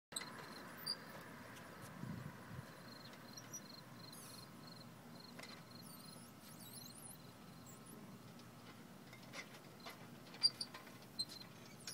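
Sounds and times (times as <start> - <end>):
tricycle rolling on concrete: 8.3 - 11.9.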